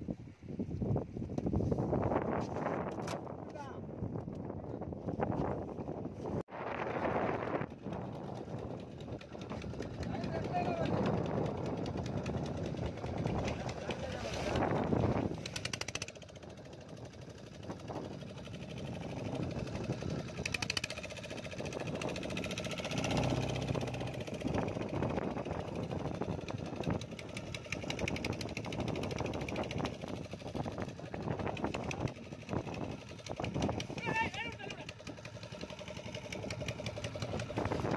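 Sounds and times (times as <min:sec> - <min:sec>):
wind: 0:00.0 - 0:37.9
boat engine knocking: 0:07.7 - 0:37.9.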